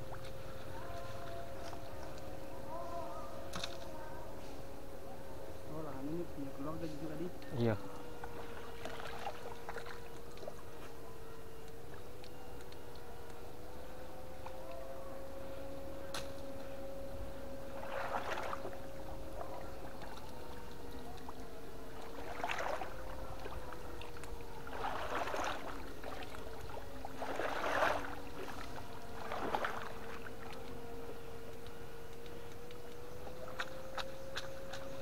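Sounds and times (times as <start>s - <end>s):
electric fishing stunner whine: 0.0s - 35.0s
water splashing: 8.2s - 10.8s, 17.6s - 35.0s.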